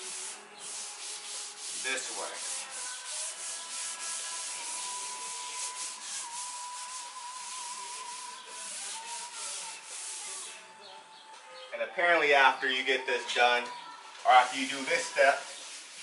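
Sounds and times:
steel wool scrubbing metal: 0:00.0 - 0:10.4.

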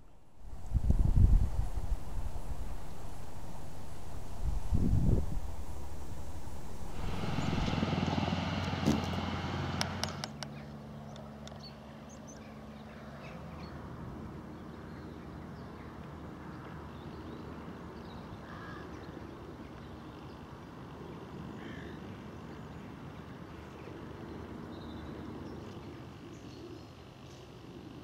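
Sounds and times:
low hum: 0:00.0 - 0:10.6
tractor diesel engine running: 0:00.5 - 0:10.5
birds calling: 0:00.5 - 0:10.8
sharp clicks from implement: 0:08.6 - 0:10.6.

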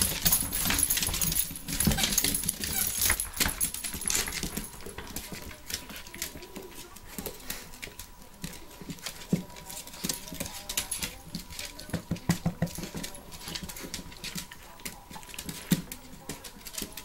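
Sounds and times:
collar tags jingling: 0:00.0 - 0:05.9.

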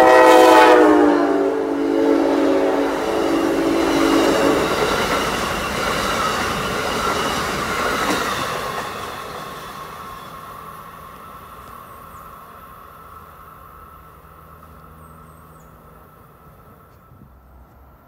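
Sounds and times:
locomotive air horn: 0:00.0 - 0:04.9
train wheels on rails: 0:00.0 - 0:18.0.

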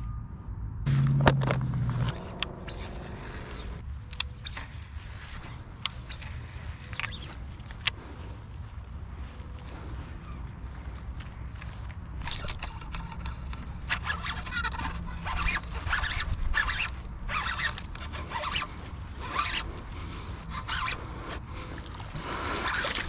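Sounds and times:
fishing reel cranking: 0:12.2 - 0:19.8.

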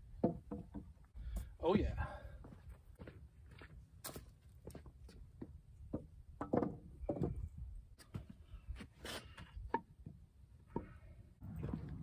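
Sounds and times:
wooden lumber knocking and scraping: 0:00.0 - 0:01.1, 0:05.4 - 0:08.4.

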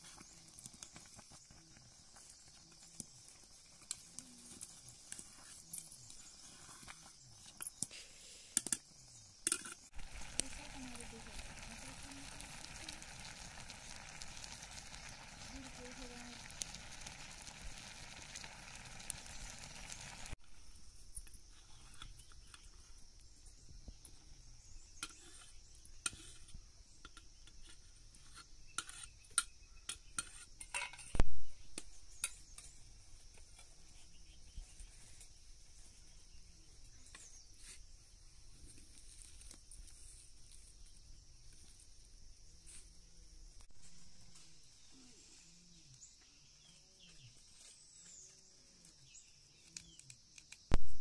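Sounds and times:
steady high hiss: 0:02.0 - 0:27.6.

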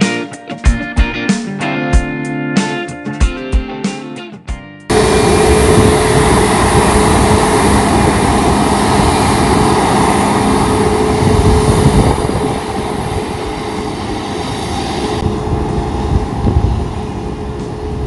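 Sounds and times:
jet airliner engines taxiing: 0:04.9 - 0:18.0.

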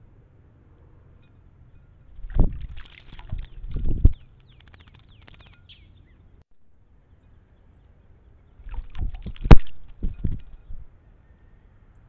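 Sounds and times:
bird wings splashing water: 0:02.2 - 0:05.8, 0:08.6 - 0:10.5
crackle: 0:02.3 - 0:05.8.

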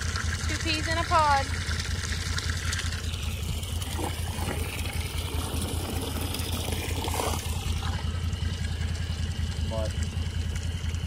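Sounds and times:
motor humming: 0:00.0 - 0:11.0.

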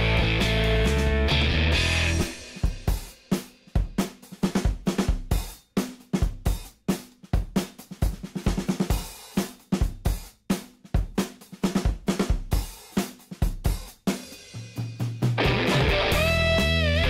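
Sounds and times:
low bass notes: 0:00.0 - 0:02.3, 0:15.4 - 0:17.0
drum kit beat: 0:00.0 - 0:17.0.

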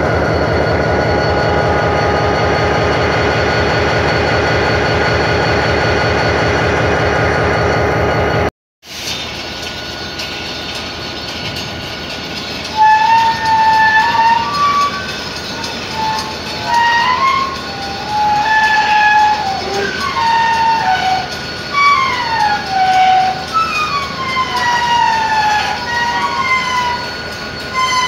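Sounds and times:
rumble of moving train: 0:00.0 - 0:28.0
train wheels squealing: 0:09.0 - 0:28.0.

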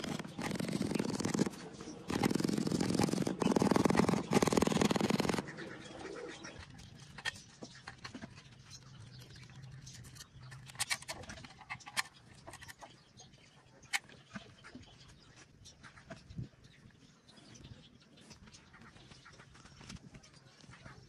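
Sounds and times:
sharp clicks and taps: 0:00.0 - 0:05.5
pigeons cooing: 0:00.0 - 0:06.7.

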